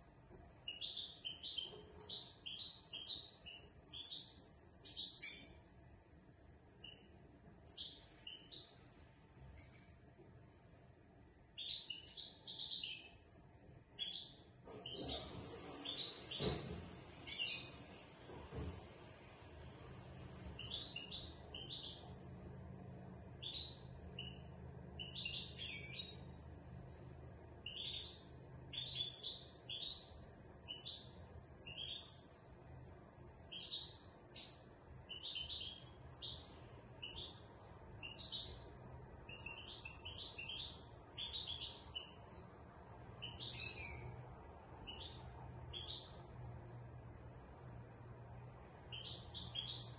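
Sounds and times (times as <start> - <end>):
goldfinch twittering song: 0.6 - 5.6, 6.8 - 8.8, 11.6 - 13.2, 14.0 - 17.8, 20.6 - 22.2, 23.3 - 27.0, 27.6 - 32.4, 33.5 - 44.2, 44.8 - 46.8, 48.9 - 49.9.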